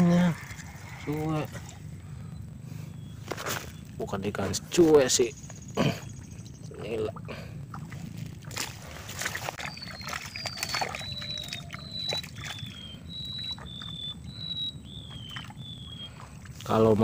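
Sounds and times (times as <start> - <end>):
bird whistling short high notes: 9.6 - 16.1.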